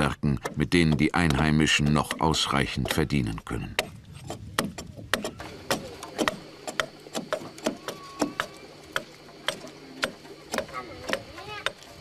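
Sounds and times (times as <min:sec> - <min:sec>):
hand tools knocking on wood: 0:00.0 - 0:12.0.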